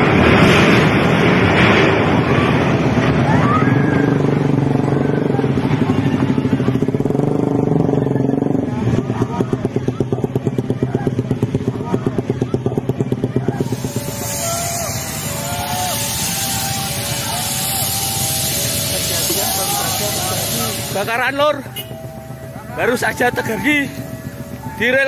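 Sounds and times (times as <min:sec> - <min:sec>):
engine running with fast pulse: 0:00.0 - 0:25.0
loud rushing noise: 0:00.0 - 0:25.0
faint voices: 0:01.9 - 0:25.0
steady pitched hum: 0:13.5 - 0:25.0.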